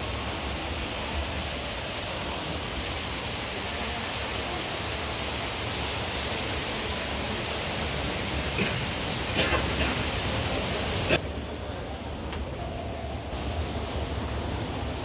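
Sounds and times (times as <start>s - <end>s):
indoor waterfall rushing: 0.0s - 11.2s.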